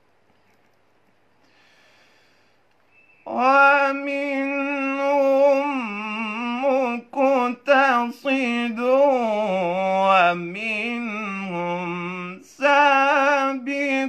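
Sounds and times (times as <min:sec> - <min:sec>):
man breathing: 0:01.4 - 0:02.8
man reciting melodically: 0:03.2 - 0:14.0.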